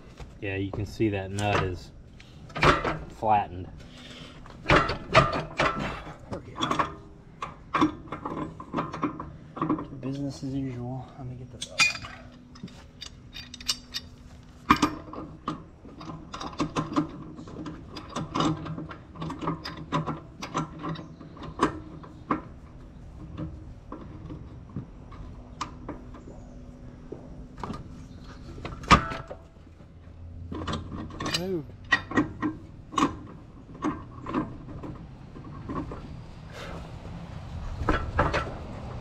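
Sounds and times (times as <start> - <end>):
low steady hum: 0.0 - 39.0
steel tools clanking: 11.5 - 15.2.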